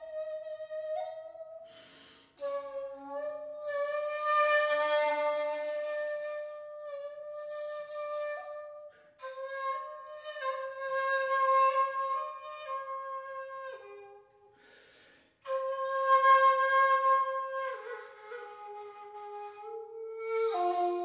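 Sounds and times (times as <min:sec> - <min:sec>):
bamboo flute long held notes: 0:00.0 - 0:14.8, 0:15.4 - 0:21.0.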